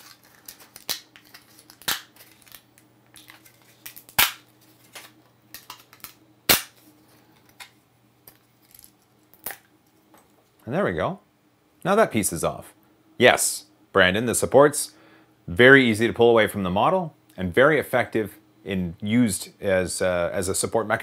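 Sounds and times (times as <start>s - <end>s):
plastic snapping and cracking: 0.0s - 6.8s.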